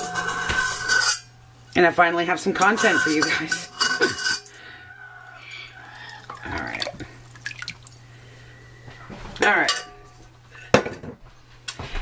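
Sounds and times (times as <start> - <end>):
steady low hum: 0.0 - 12.0
liquid dripping into pot: 5.3 - 8.0.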